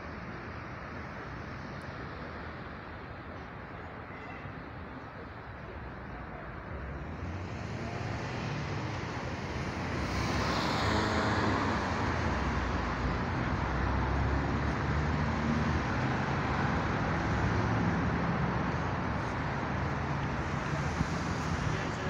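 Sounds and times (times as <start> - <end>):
low rumble of traffic: 0.0 - 22.0.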